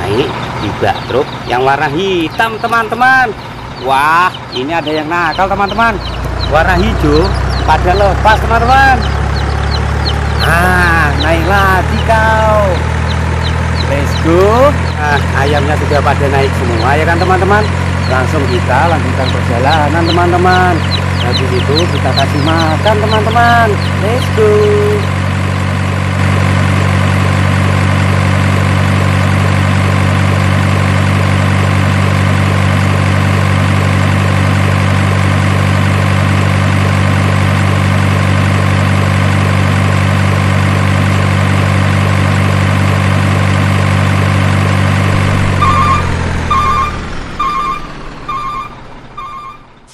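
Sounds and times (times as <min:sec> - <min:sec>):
truck engine idling: 0:00.0 - 0:49.9
repeating electronic beep: 0:03.9 - 0:25.1, 0:44.3 - 0:49.9.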